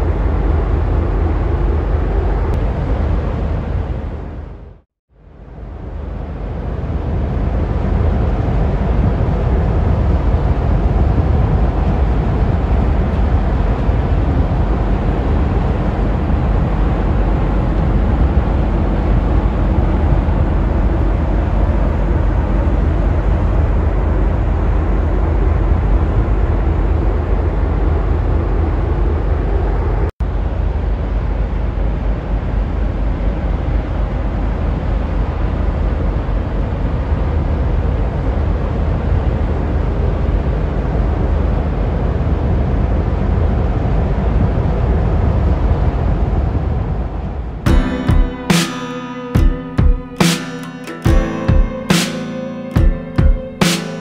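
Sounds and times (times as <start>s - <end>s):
freighter passing rumble: 5.6s - 48.0s.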